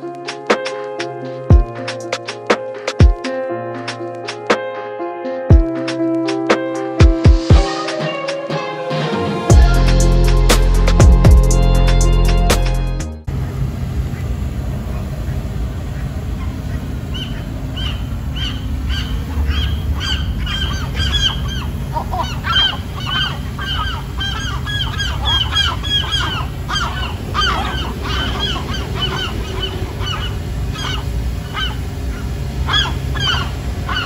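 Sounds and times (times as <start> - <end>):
low steady rumble: 13.3 - 34.0
seagulls squawking: 14.9 - 34.0.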